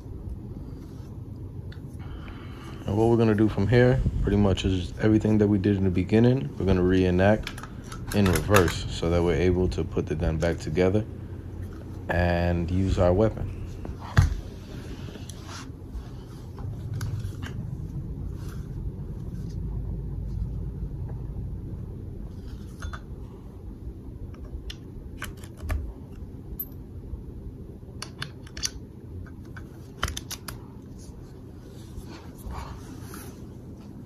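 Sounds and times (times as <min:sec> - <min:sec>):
low steady hum: 0:00.0 - 0:34.0
metal parts clicking and tapping: 0:28.0 - 0:30.6.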